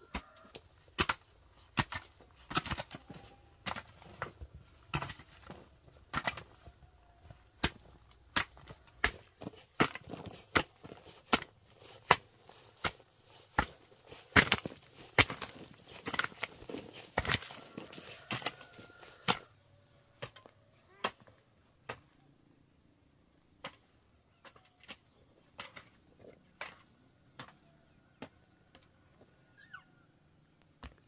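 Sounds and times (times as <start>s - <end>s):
hand tool striking wood: 1.0s - 6.6s, 7.6s - 17.7s.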